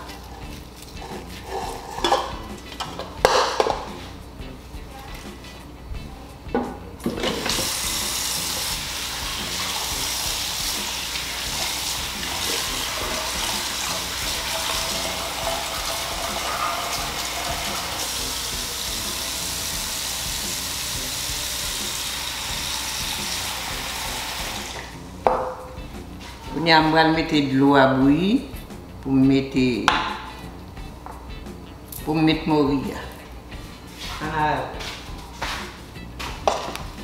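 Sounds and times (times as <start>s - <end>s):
pot knocks: 2.0s - 3.9s, 25.2s - 25.8s, 29.9s - 30.3s, 36.4s - 36.8s
faucet running into steel sink: 7.2s - 24.9s.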